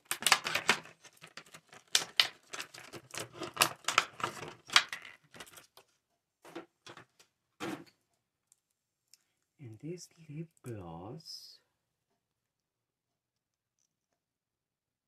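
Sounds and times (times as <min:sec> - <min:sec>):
plastic cases clicking and tapping: 0:00.0 - 0:05.8.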